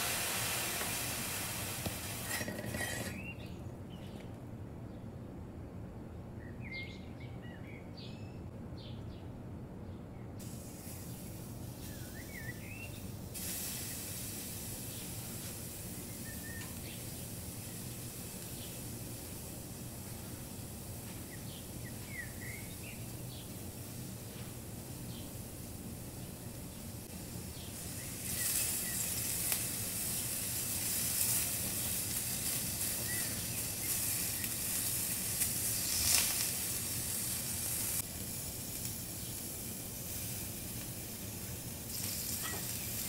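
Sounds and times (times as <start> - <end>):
meat sizzling on a hot griddle: 0.0 - 3.0, 10.4 - 24.3, 27.0 - 43.0
bird chirping: 6.4 - 10.4, 11.8 - 13.1.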